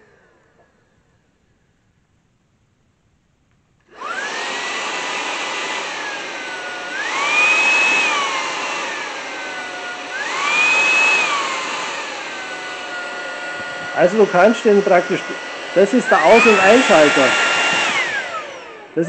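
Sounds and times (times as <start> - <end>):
stick vacuum motor whine: 3.8 - 19.0.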